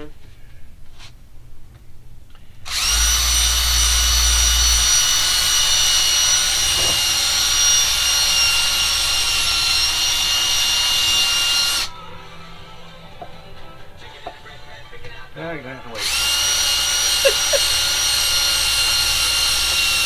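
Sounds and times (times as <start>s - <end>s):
power tool whining: 2.7s - 12.0s, 16.0s - 20.0s.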